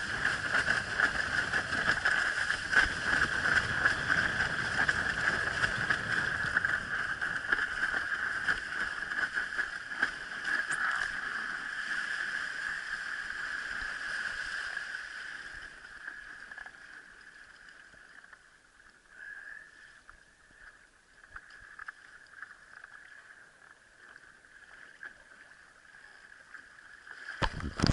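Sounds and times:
water rushing along a board: 0.0 - 17.2, 26.4 - 27.9.

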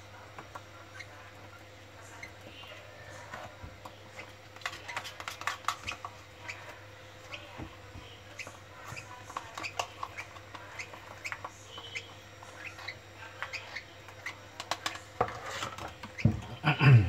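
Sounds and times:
bird chicks chirping: 4.1 - 15.0.

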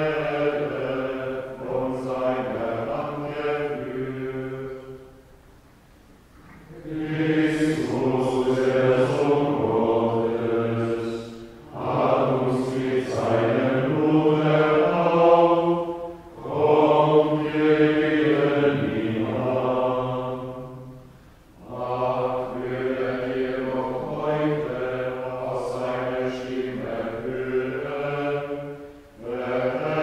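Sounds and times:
men singing plainchant: 0.0 - 5.0, 6.7 - 20.6, 21.6 - 30.0.

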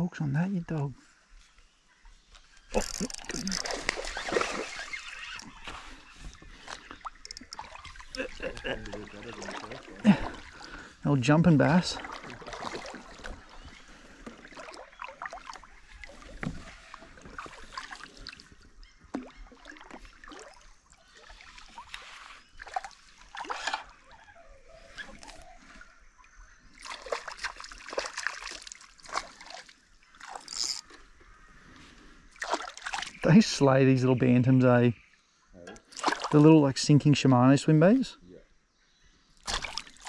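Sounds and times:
fish splashing in water: 2.8 - 5.7, 6.7 - 10.8, 11.7 - 24.2, 26.7 - 30.8, 32.3 - 33.2, 35.8 - 36.4, 39.4 - 40.0.

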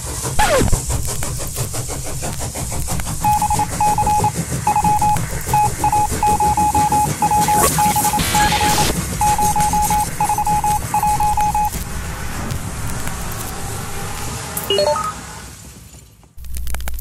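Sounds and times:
rising electronic sweep: 2.0 - 15.3
morse code beeps: 3.2 - 11.8, 14.7 - 15.2.

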